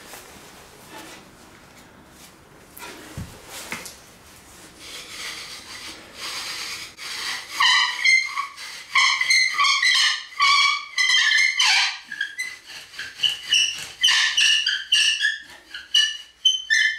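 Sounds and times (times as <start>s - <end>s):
wooden spindle grinding: 4.8s - 16.9s
loud squeaking: 5.1s - 16.9s.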